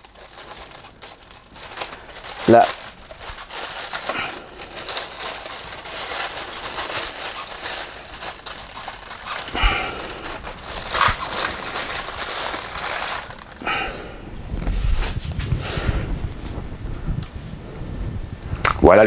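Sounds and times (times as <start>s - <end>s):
packaging crinkling and rustling: 0.0s - 15.2s.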